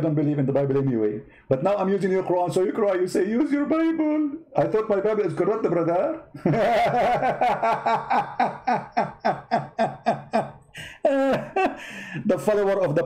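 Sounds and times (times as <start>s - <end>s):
man laughing: 6.4s - 12.3s.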